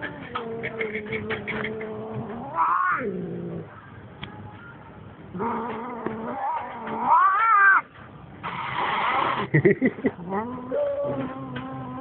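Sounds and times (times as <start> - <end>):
cat yowling: 0.4 - 3.1, 5.4 - 7.8, 10.4 - 12.0.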